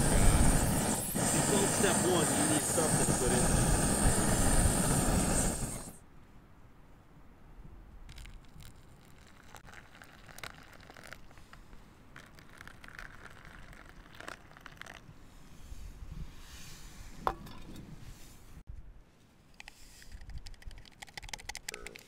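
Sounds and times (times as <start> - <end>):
water pouring: 8.1 - 11.6, 12.2 - 15.1.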